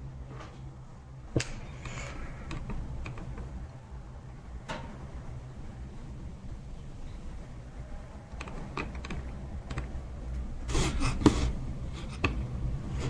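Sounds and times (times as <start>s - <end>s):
low steady hum: 0.0s - 13.0s
keyboard and mouse clicks: 1.4s - 3.5s, 8.3s - 10.0s.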